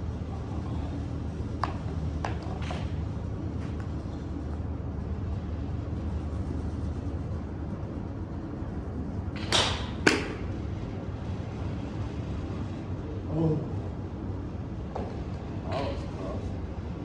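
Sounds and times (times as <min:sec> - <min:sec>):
club striking golf ball: 0:09.4 - 0:10.4.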